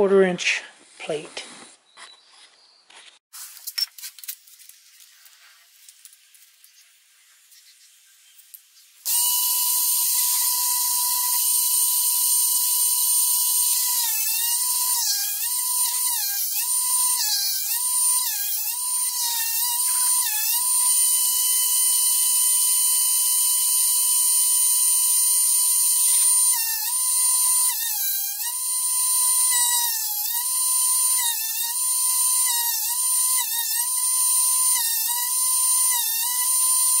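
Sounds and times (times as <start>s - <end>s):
drill bit grinding: 9.1s - 37.0s
electric motor whining: 9.1s - 37.0s.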